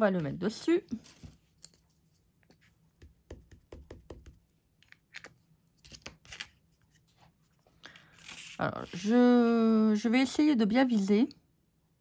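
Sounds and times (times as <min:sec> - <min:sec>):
stamp block tapping on paper: 0:03.0 - 0:04.4.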